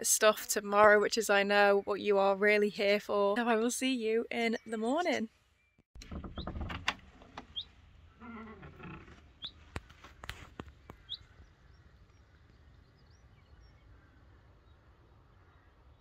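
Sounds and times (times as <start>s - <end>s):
faint rural background: 0.0s - 16.0s
small bird chirping: 4.4s - 6.7s, 7.4s - 14.8s
animal call: 7.5s - 9.1s.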